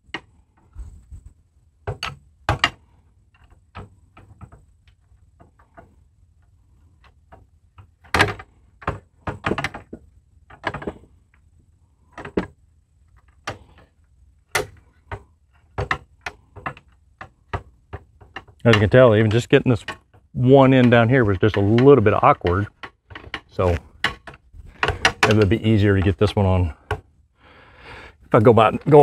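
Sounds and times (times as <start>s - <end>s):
gas spring clicking and clacking: 18.2s - 26.2s.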